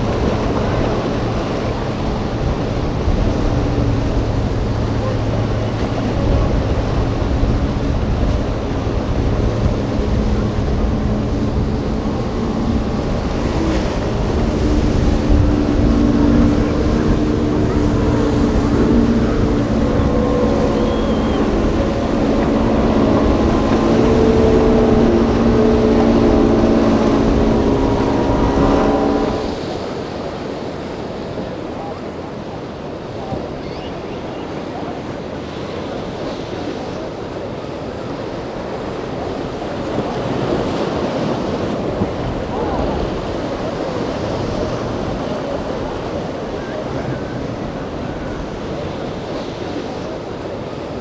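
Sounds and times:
motorboat engines running: 0.0s - 51.0s.

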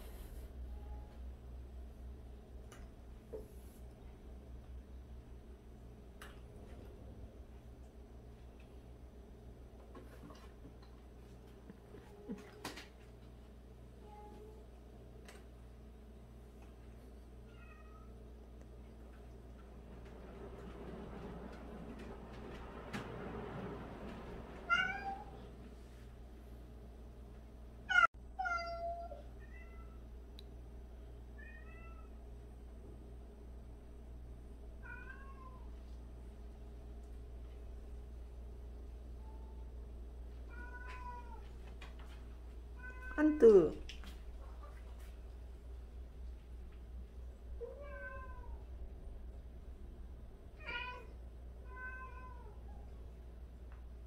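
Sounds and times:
low room hum: 0.0s - 54.0s
cats meowing: 47.6s - 48.6s, 50.6s - 52.9s.

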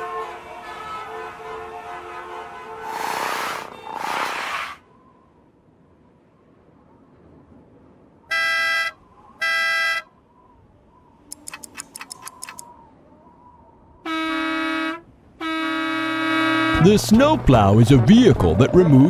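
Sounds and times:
toy car horn honking: 8.3s - 10.1s, 14.1s - 17.0s
sharp clicks: 11.2s - 12.7s
deeper horn blast: 14.0s - 19.0s.

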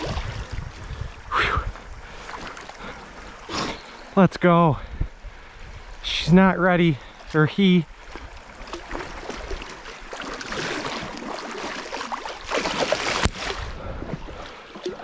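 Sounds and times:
water splashing around wading legs: 0.0s - 1.2s, 2.0s - 3.7s, 7.2s - 15.0s
running stream: 0.0s - 15.0s.

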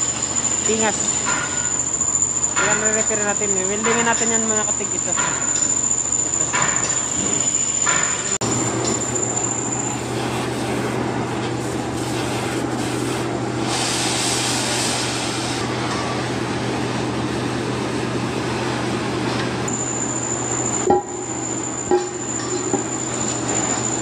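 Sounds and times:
welding arc buzzing: 0.0s - 15.6s.

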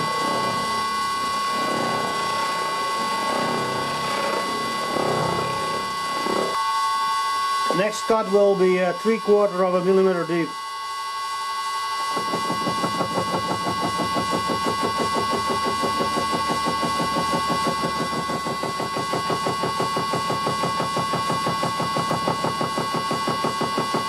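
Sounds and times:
lathe gear whine: 0.0s - 24.0s
milling cutter hammering steel: 12.1s - 24.0s.

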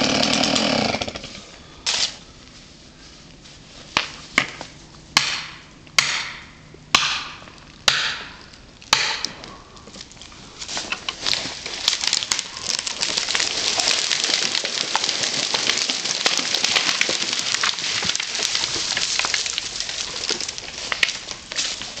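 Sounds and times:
branches crackling in fire: 0.0s - 6.1s, 6.7s - 22.0s.

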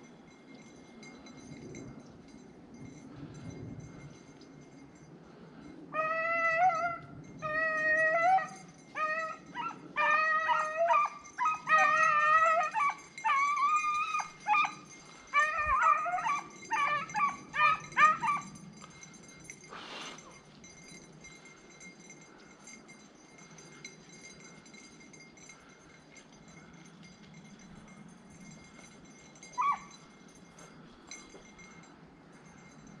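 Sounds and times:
hound baying: 5.9s - 20.4s, 29.4s - 30.7s.

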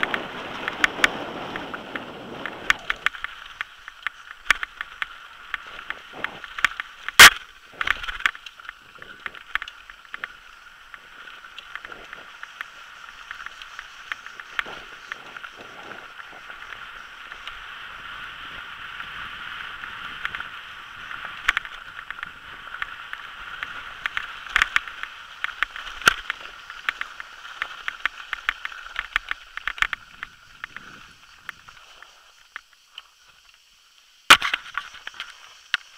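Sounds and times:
tyres hissing on gravel: 0.0s - 35.9s
bike knocks and rattles: 34.3s - 35.9s.

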